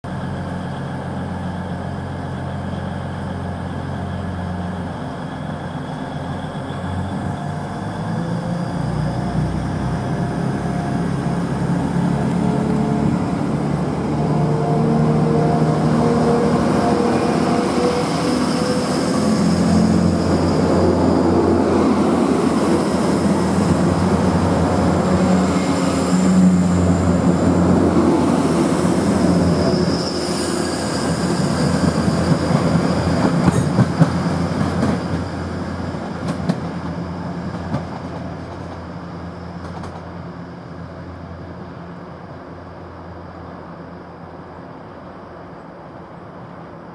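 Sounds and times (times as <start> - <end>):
diesel train engines revving: 0.1 - 46.9
high engine whine: 0.1 - 46.9.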